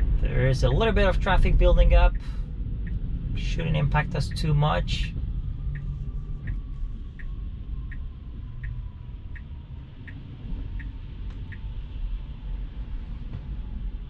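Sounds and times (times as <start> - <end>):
road rumble inside car: 0.0 - 14.0
car turn signal ticking: 0.8 - 11.7.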